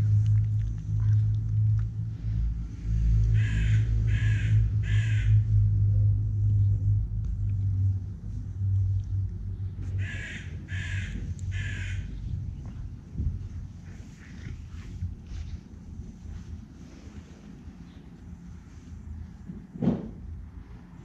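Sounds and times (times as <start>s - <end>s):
steady low rumble: 0.0s - 21.0s
crow cawing: 3.3s - 5.4s, 10.0s - 12.1s.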